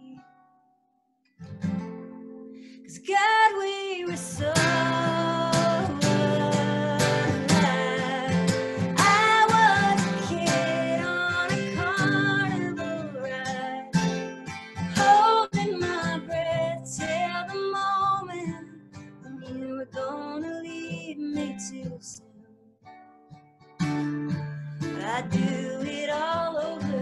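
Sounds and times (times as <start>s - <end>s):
woman singing: 0.0s - 0.4s, 2.8s - 22.6s, 24.8s - 27.0s
strummed acoustic guitar: 1.4s - 3.2s, 4.0s - 27.0s.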